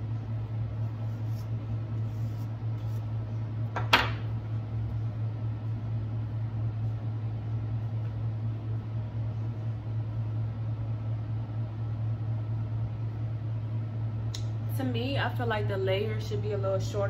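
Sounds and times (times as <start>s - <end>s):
low hum: 0.0s - 17.0s
hairbrush strokes through hair: 0.8s - 3.2s.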